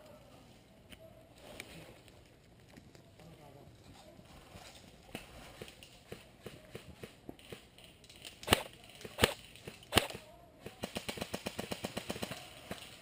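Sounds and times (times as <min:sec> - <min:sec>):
rapid airsoft gun cracks: 0:05.1 - 0:13.0
airsoft gun shots: 0:08.4 - 0:10.2.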